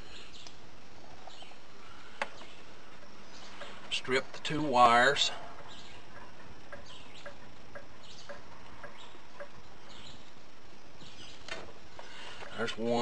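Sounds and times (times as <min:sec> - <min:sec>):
steady hiss: 0:00.0 - 0:13.0
soft ticks: 0:05.6 - 0:09.6.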